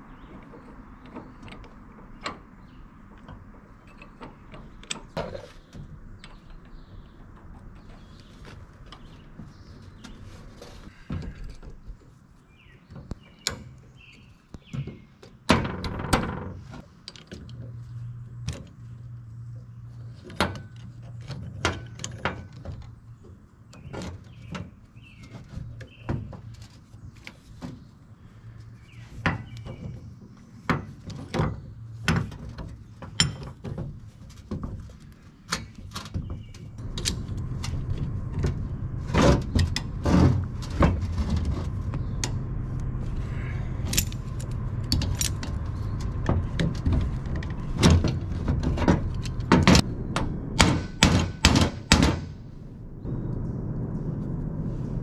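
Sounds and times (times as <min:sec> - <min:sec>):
birds chirping: 0:00.0 - 0:15.4, 0:22.8 - 0:33.4, 0:34.9 - 0:51.1
low hum: 0:36.4 - 0:55.0
metal tools clanking: 0:43.5 - 0:49.8.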